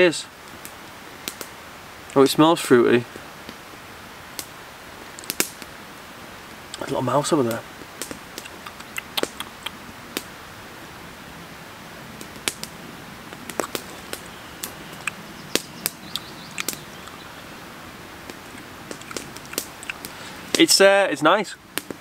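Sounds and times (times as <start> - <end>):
faint steady hiss: 0.0 - 22.0
sharp clicks and crackles: 5.2 - 5.7, 7.5 - 10.3, 12.2 - 12.7, 13.3 - 17.2, 18.2 - 20.7.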